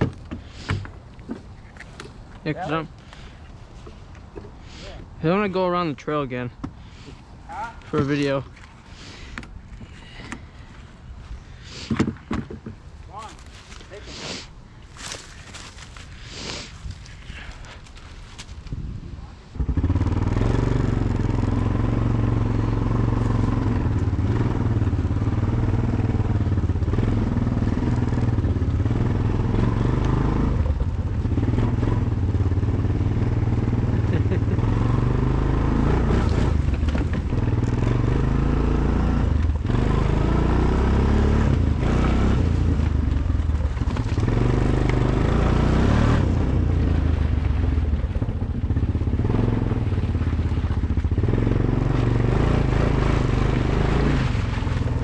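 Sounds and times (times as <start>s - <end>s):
atv engine running: 19.5s - 55.0s.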